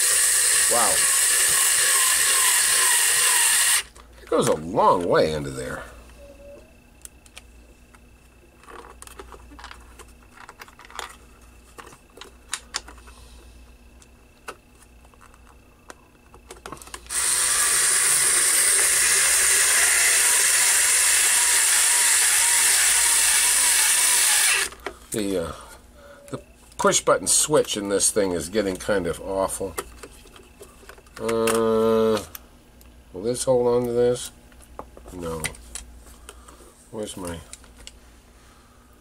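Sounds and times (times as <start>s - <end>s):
electric screwdriver running: 0.0s - 3.9s, 17.1s - 24.8s.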